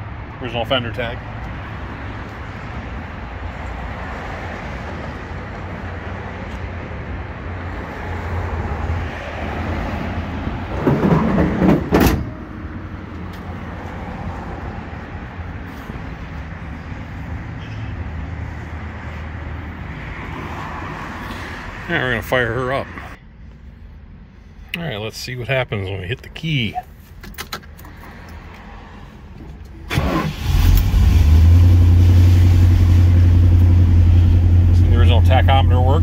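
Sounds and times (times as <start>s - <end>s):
street traffic rumble: 0.0s - 36.0s
wind: 0.0s - 36.0s
car hood slamming shut: 11.0s - 12.4s.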